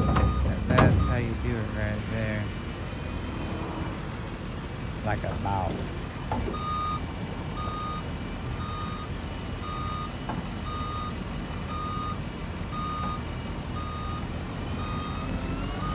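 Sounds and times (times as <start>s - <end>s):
back-up alarm beeping: 0.0s - 1.9s, 6.5s - 15.9s
diesel engine running: 0.0s - 15.9s.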